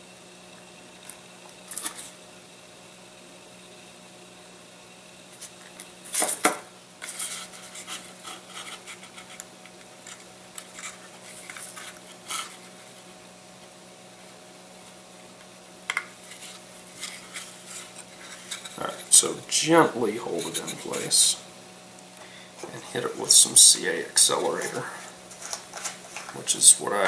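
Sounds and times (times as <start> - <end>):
balsa wood scraping and rustling: 5.3 - 13.1, 16.2 - 21.4, 22.6 - 27.0.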